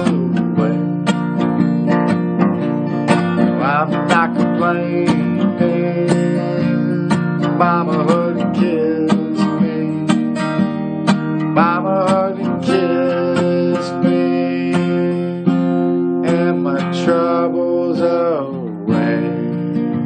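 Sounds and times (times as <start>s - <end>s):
acoustic guitar strumming: 0.0s - 20.0s.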